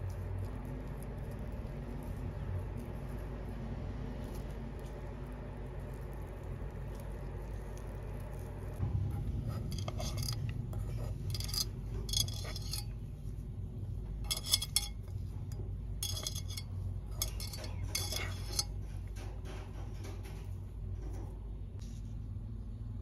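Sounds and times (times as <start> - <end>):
rustling of food by hand: 0.0 - 19.2
steady low hum: 0.0 - 23.0
light clinking: 9.6 - 13.0, 14.1 - 21.4.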